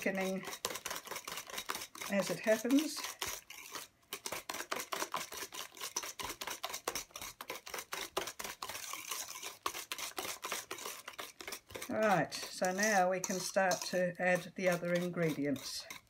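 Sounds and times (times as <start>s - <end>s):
whisk clicking in metal bowl: 0.0s - 16.0s.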